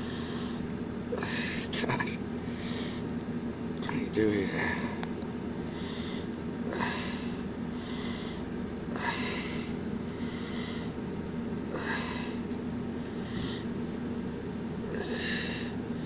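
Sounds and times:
nasal breathing: 0.0s - 1.7s, 2.4s - 3.1s, 4.5s - 11.0s, 11.7s - 13.8s, 14.9s - 16.0s
steady low hum: 0.0s - 16.0s.

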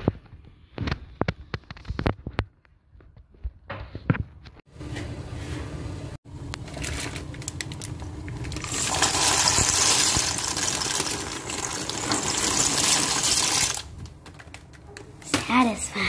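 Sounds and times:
water boiling in a pot: 6.3s - 14.2s
pasta pouring into water: 6.7s - 14.2s.

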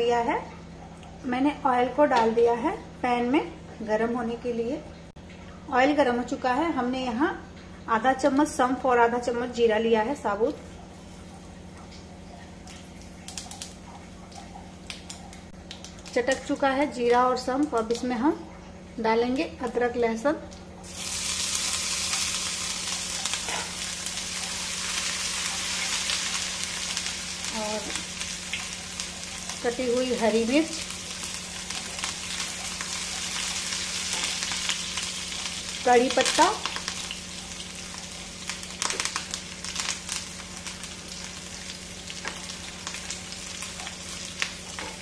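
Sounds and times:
paste sizzling in hot oil: 20.8s - 45.0s.

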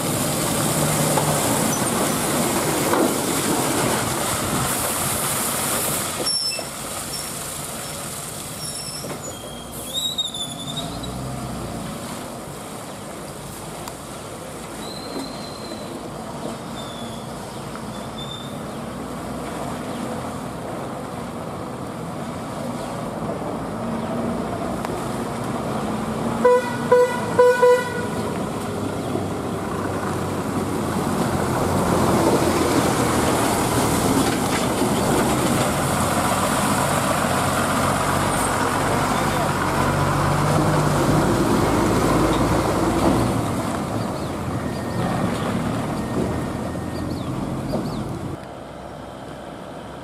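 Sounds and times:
diesel truck engine rumble: 0.0s - 50.0s
tyre noise on wet road: 0.0s - 50.0s
truck horn toots: 26.4s - 28.3s.

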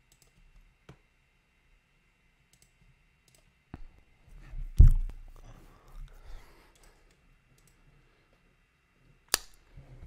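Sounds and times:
computer mouse and keyboard clicks: 0.1s - 1.0s.

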